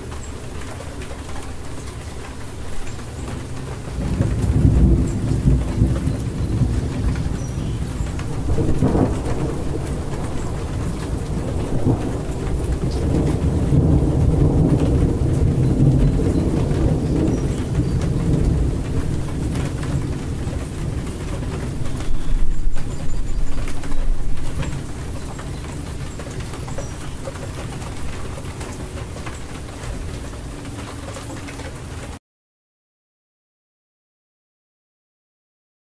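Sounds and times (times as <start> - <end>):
steady rain falling: 0.0 - 32.2
thunder rumbling: 2.7 - 30.8.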